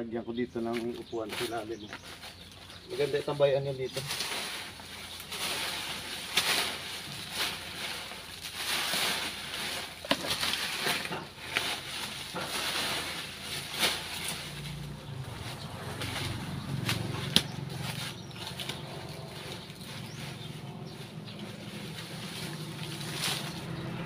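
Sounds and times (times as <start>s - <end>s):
dry leaves crunching and rustling: 0.6s - 24.0s
garden tool striking: 15.9s - 19.0s.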